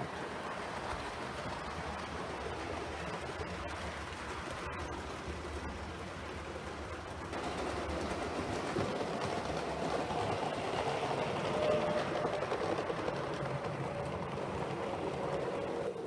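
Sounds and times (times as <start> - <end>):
model train rumbling on track: 0.0 - 16.0.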